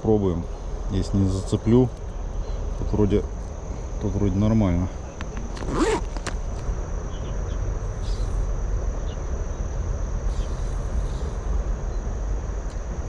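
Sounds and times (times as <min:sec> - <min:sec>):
high-pitched insect drone: 0:00.0 - 0:13.0
outdoor background rumble: 0:00.0 - 0:13.0
faint chirps: 0:07.0 - 0:12.2.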